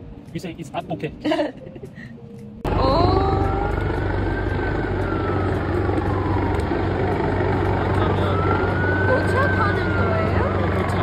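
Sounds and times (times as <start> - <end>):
helicopter rotor chopping: 2.7 - 11.0
siren wailing: 2.7 - 11.0.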